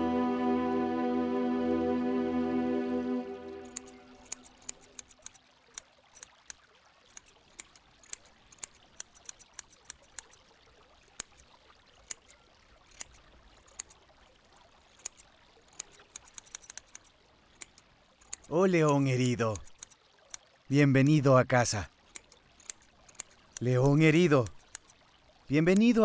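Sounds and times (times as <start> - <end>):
faint steady hiss: 0.0 - 26.0
sharp high-pitched clicks: 3.6 - 5.4, 6.2 - 10.4, 15.0 - 20.4, 22.1 - 25.0.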